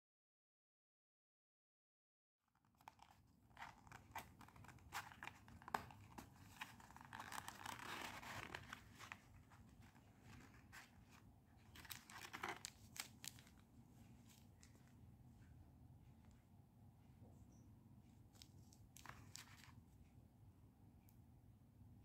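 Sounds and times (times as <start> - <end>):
packaging crinkling and rustling: 2.6 - 13.6, 18.4 - 19.7.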